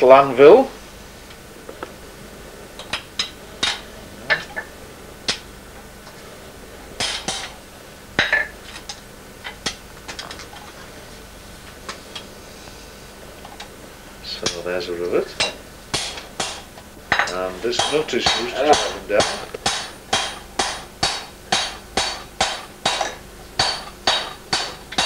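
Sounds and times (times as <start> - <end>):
hammer riveting metal on anvil: 2.9 - 4.7, 7.0 - 7.6, 8.2 - 8.5, 15.4 - 25.0.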